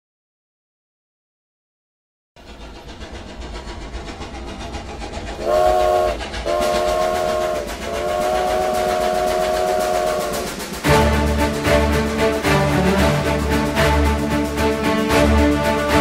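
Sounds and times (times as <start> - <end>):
train chugging on rails: 2.4 - 16.0
train whistle blasts: 5.4 - 11.0.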